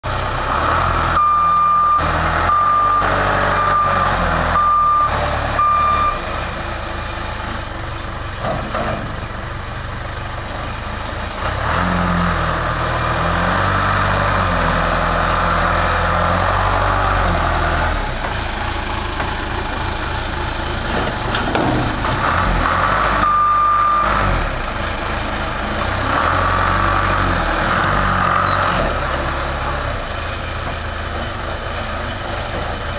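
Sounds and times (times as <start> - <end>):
diesel engine revving: 0.0 - 32.9
reversing alarm beeping: 1.2 - 6.2, 23.2 - 24.3.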